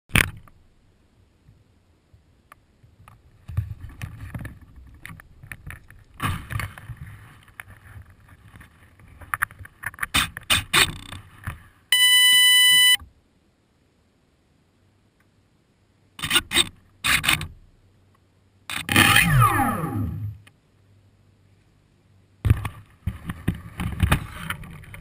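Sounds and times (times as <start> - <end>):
handling clicks and bumps: 2.9 - 11.6, 22.4 - 25.0
electronic beep: 11.9 - 13.0.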